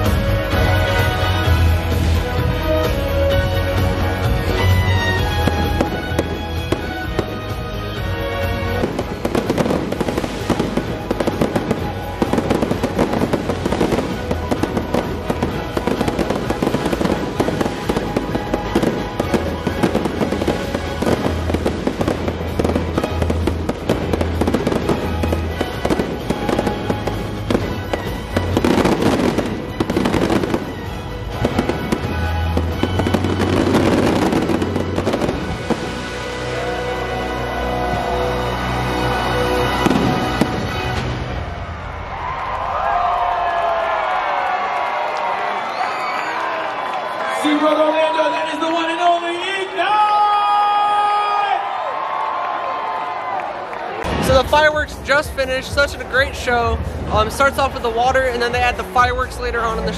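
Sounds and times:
music over loudspeakers: 0:00.0 - 0:42.0, 0:54.0 - 0:59.9
fireworks bangs and crackles: 0:00.0 - 0:46.9, 0:54.0 - 0:59.9.

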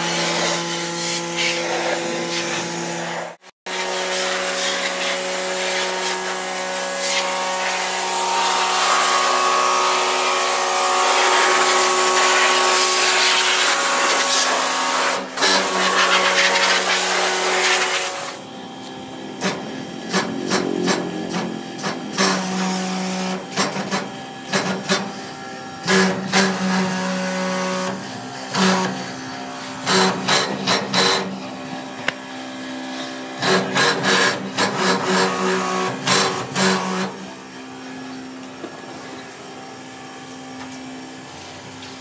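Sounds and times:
pressure washer spraying: 0:00.0 - 0:18.4, 0:21.8 - 0:23.7
pump motor humming: 0:03.7 - 0:41.6.

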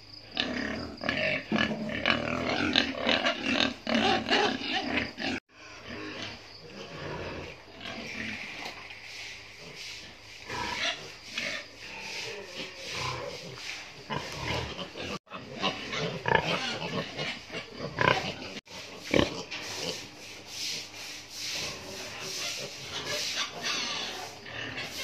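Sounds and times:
pigs grunting: 0:00.3 - 0:20.1, 0:21.5 - 0:25.0.

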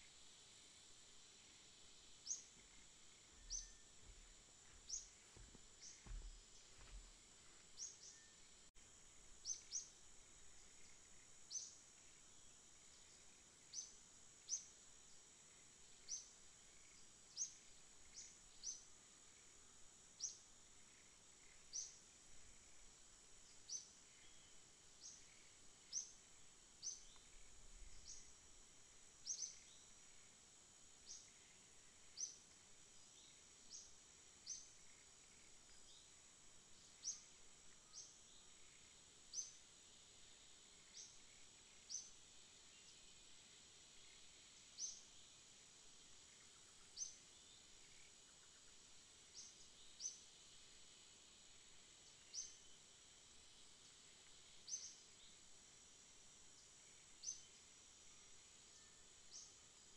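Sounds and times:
faint high hiss: 0:00.0 - 0:59.9
small bird chirping: 0:02.2 - 0:07.1, 0:07.7 - 0:08.5, 0:09.4 - 0:10.0, 0:29.2 - 0:30.0.

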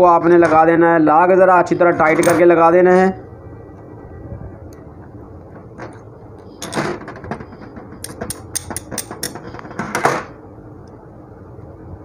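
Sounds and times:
metallic clicks and clinks: 0:08.0 - 0:09.6.

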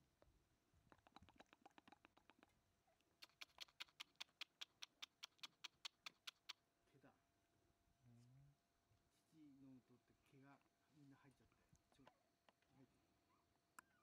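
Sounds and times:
faint ticks: 0:03.2 - 0:06.6
rapid sharp clicks: 0:03.2 - 0:06.6.

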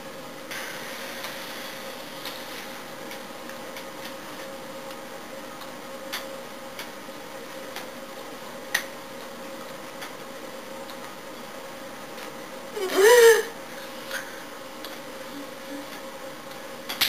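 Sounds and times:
steady hiss: 0:00.0 - 0:05.2
faint hum: 0:00.0 - 0:17.0.

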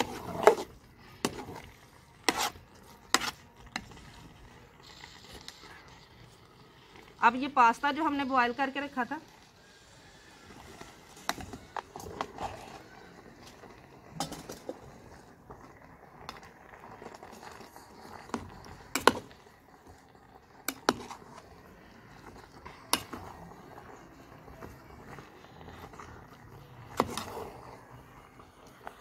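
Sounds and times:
metal spatula scraping steel pot: 0:00.0 - 0:04.0, 0:17.3 - 0:19.6, 0:20.4 - 0:24.6, 0:25.5 - 0:28.0.

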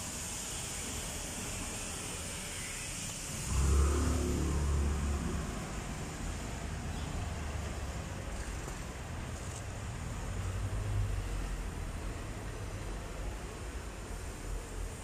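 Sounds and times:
low traffic rumble: 0:00.0 - 0:15.0
vehicle engine running: 0:03.4 - 0:09.6.

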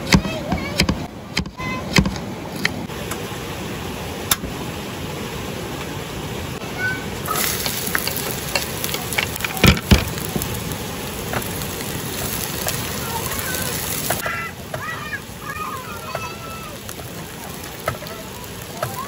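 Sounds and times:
steady rushing hiss: 0:02.0 - 0:19.0
pots and utensils handled: 0:07.3 - 0:10.5.

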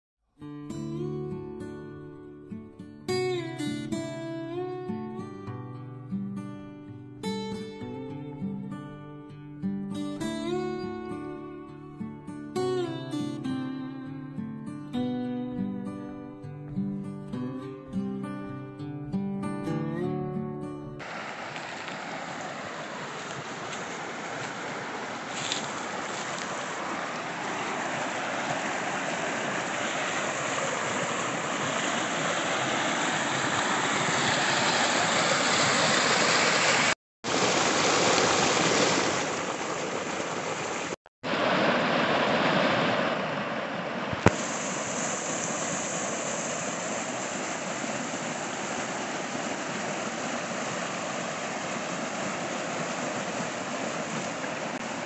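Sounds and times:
creek water rushing over rocks: 0:21.0 - 0:55.0.

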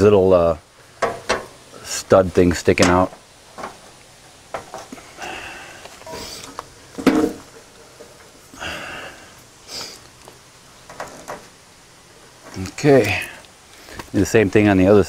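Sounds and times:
panel scraping and rustling: 0:01.0 - 0:01.6, 0:02.7 - 0:05.0, 0:06.0 - 0:08.4, 0:10.8 - 0:11.6.

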